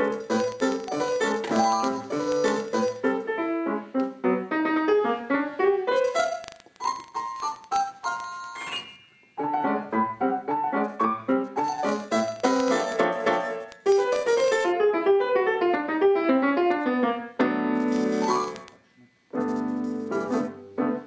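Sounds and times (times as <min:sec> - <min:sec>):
fast classical piano: 0:09.4 - 0:18.6.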